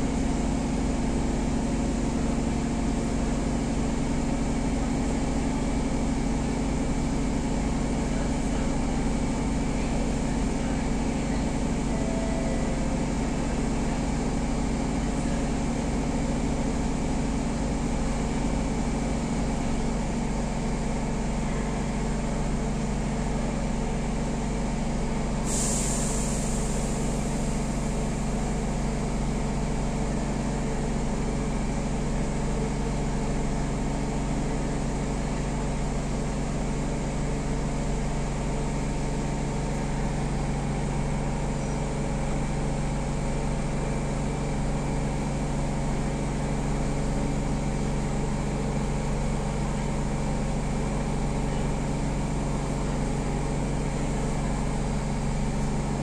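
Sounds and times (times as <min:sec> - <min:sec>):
train equipment hum: 0:10.2 - 0:16.3
compressed air hiss: 0:25.4 - 0:27.0.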